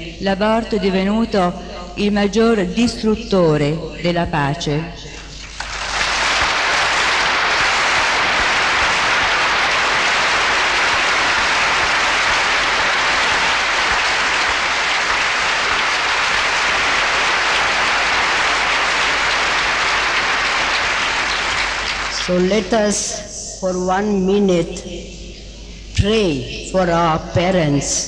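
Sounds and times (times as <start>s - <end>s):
large audience applauding: 5.4s - 22.4s.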